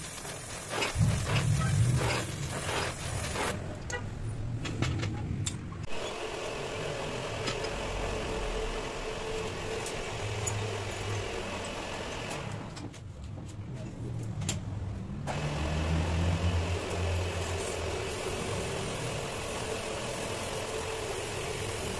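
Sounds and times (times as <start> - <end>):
welding torch hissing: 0.0 - 3.6, 17.0 - 21.9
engine-like running sound: 0.7 - 3.7.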